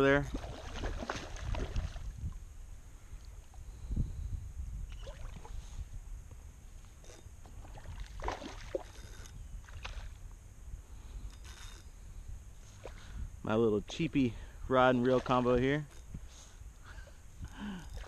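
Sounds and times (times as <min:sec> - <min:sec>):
low steady rumble: 0:00.0 - 0:18.0
water splashing from thrashing fish: 0:00.3 - 0:02.1, 0:07.6 - 0:09.0.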